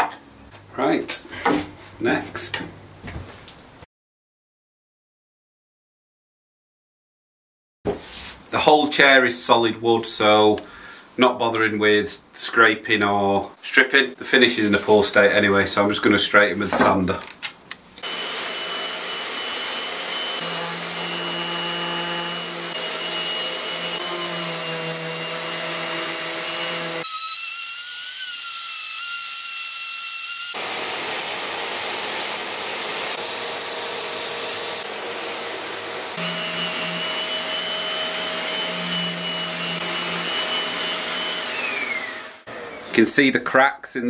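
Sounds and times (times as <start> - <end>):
shop vacuum running: 18.0 - 24.4, 30.6 - 42.9
orbital sander on wood: 18.0 - 42.8.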